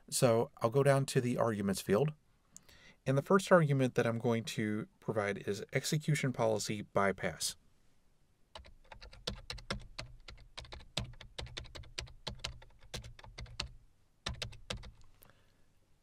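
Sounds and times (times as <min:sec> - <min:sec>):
typing on computer keyboard: 0:08.6 - 0:15.0.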